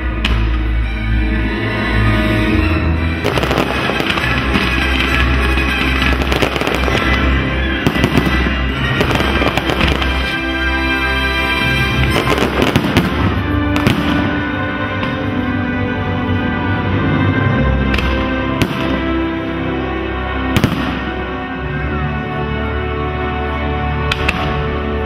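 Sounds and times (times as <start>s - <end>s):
music with steady bass: 0.0s - 25.0s
fireworks bangs and crackling: 3.1s - 15.6s, 17.3s - 19.4s, 20.4s - 21.6s, 24.0s - 25.0s.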